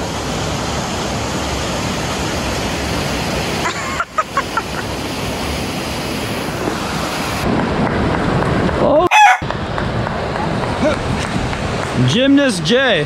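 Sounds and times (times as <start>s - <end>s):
river white water rushing: 0.0s - 8.7s.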